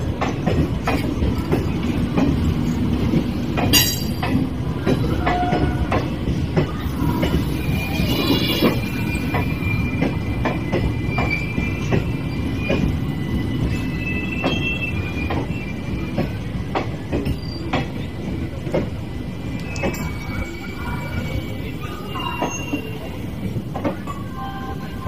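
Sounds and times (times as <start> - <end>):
wheel clacks over rail joints: 0.0 - 7.5
train coaches rumbling past: 0.0 - 25.0
high wheel squeal: 7.0 - 16.4, 19.6 - 23.4.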